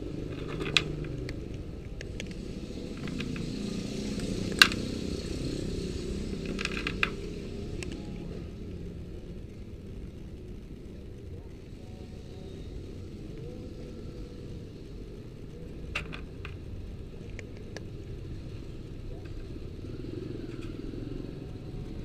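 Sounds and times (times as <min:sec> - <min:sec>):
steady low rumble: 0:00.0 - 0:20.0
cat crunching dry kibble: 0:00.2 - 0:05.3, 0:06.3 - 0:08.0.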